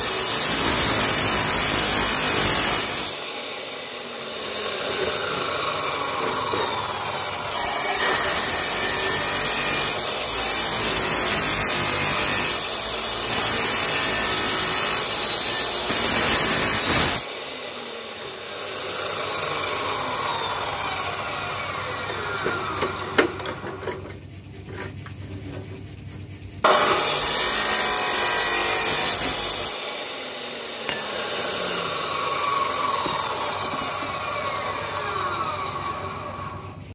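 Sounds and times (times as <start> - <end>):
saw motor winding down: 0.0 - 23.6, 26.6 - 36.9
cut-off saw grinding steel pipe: 0.0 - 24.0, 26.6 - 36.9.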